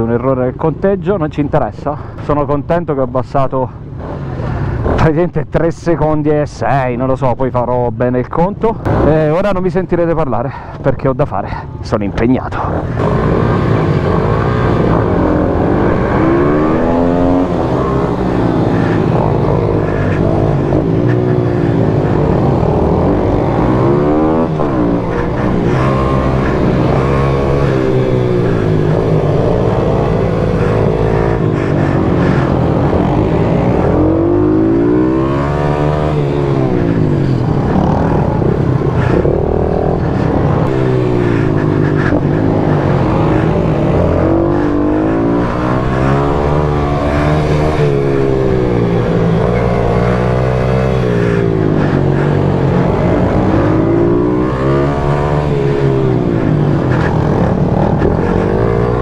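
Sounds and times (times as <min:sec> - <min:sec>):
motorbike engine revving: 0:12.6 - 0:59.0.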